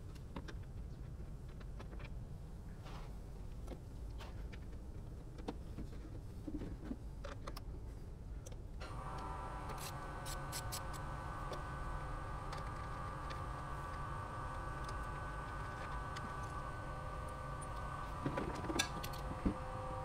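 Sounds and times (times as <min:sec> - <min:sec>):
low steady rumble: 0:08.7 - 0:20.0
mid-pitched whine: 0:08.8 - 0:20.0.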